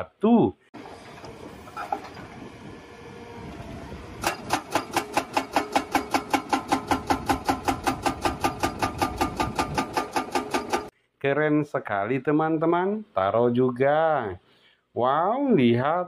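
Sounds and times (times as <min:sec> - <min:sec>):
excavator engine running: 0:00.8 - 0:10.9
hydraulic breaker hammering rock: 0:04.2 - 0:10.9.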